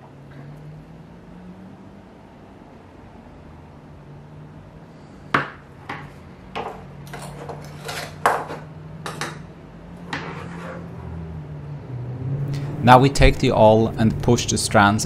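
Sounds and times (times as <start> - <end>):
low steady hum: 0.0 - 15.0
tools tapping on wooden table: 5.4 - 7.6, 8.2 - 9.4.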